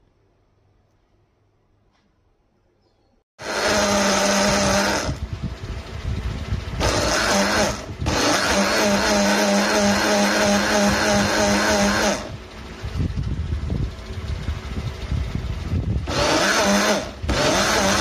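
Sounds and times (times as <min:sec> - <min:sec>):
blender motor running: 0:03.4 - 0:05.4, 0:06.0 - 0:12.4, 0:15.3 - 0:18.0.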